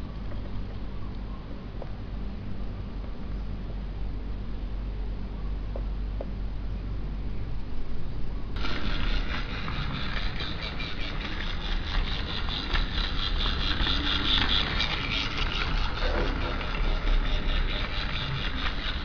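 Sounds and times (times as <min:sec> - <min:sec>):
toy train motor whirring: 0:08.6 - 0:19.0.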